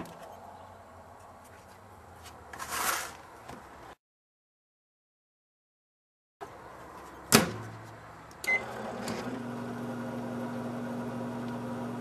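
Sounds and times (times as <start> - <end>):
microwave humming: 8.4 - 12.0.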